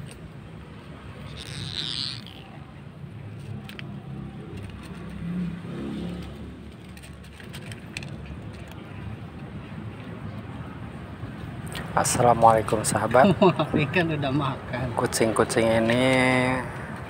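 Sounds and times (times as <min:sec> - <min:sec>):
road traffic: 0:00.0 - 0:17.0
vehicle engine rumble: 0:00.0 - 0:17.0.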